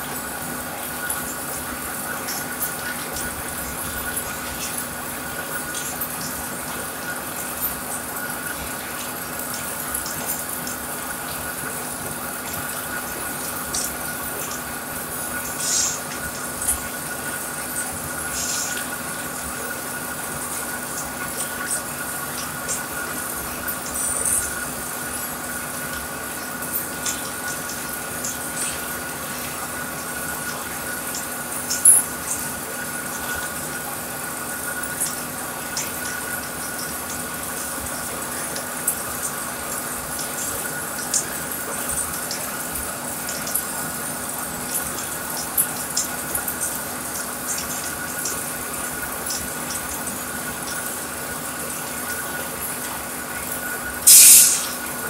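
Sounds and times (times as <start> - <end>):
lathe gearbox hum with whine: 0.0 - 55.0
even hiss: 54.1 - 54.8.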